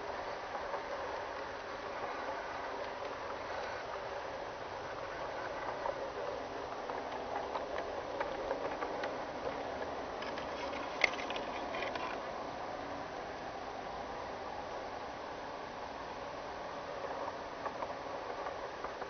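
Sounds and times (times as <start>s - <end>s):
model train wheels and motor: 0.0s - 19.0s
clicks of train on track: 5.0s - 12.2s, 16.9s - 19.0s.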